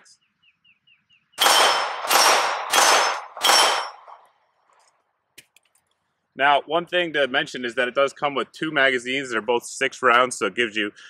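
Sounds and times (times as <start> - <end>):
pistol shots: 1.4 - 4.2
steel target ringing: 1.4 - 4.2.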